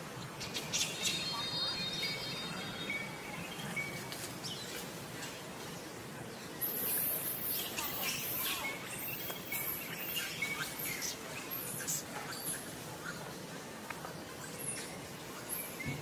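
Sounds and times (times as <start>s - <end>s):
steady background hiss: 0.0s - 16.0s
high chirping calls: 0.3s - 5.8s, 6.4s - 13.2s.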